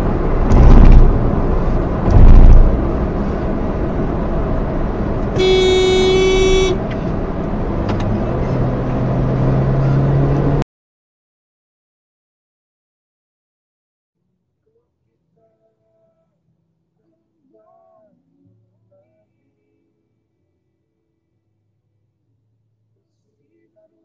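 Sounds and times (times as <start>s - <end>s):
road and engine rumble in car: 0.0s - 10.6s
heavy low thumps: 0.3s - 1.4s, 2.0s - 3.0s
car horn honk: 5.3s - 6.9s.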